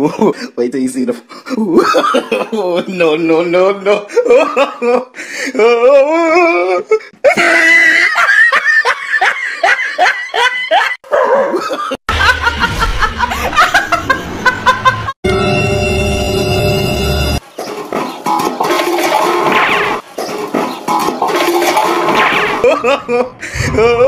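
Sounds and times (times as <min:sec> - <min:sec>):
people laughing hard: 0:01.6 - 0:03.0, 0:03.8 - 0:15.2, 0:22.6 - 0:24.0.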